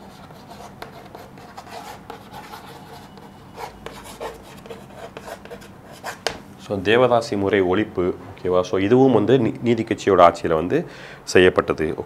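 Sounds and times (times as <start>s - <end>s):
chalk scratching on blackboard: 0.0s - 6.4s.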